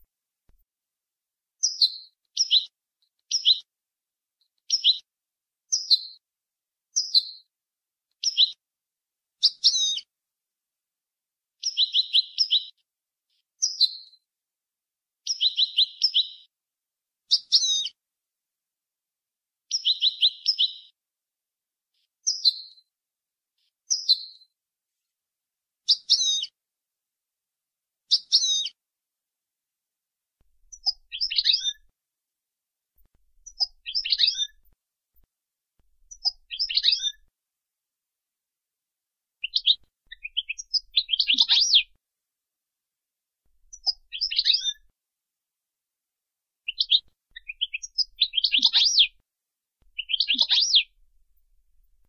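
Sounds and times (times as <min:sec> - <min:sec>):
goldfinch singing: 0:30.6 - 0:31.9, 0:33.4 - 0:34.7, 0:36.0 - 0:37.3, 0:39.4 - 0:41.9, 0:43.6 - 0:44.9, 0:46.7 - 0:49.2, 0:49.9 - 0:52.0.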